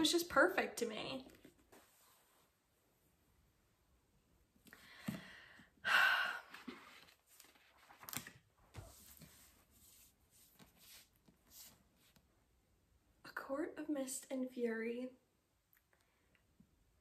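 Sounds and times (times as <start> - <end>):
soft rustling: 1.0 - 2.9, 6.6 - 12.4
woman sighing: 4.8 - 6.8.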